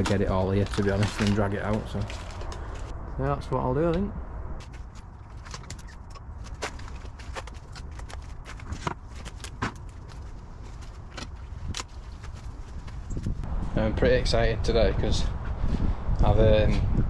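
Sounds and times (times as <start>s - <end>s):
footsteps in dry leaves: 0.0s - 2.9s.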